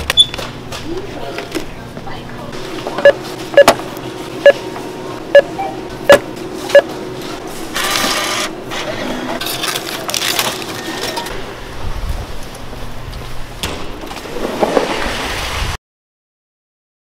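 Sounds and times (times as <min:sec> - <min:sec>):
barcode scanner beeping: 0:03.0 - 0:03.8, 0:05.3 - 0:06.9.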